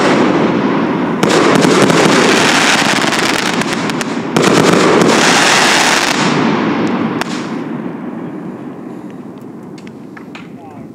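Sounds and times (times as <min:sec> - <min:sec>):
firework crackling pops: 0:00.0 - 0:07.8
firework rushing: 0:00.0 - 0:08.2
firework volley: 0:00.0 - 0:10.9.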